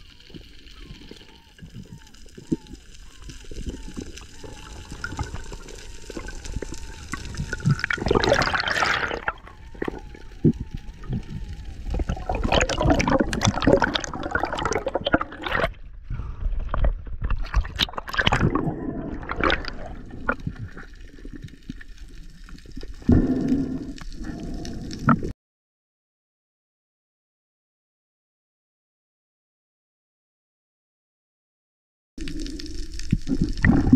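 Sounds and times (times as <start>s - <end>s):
underwater gurgling and bubbling: 0.0s - 25.3s, 32.2s - 33.9s.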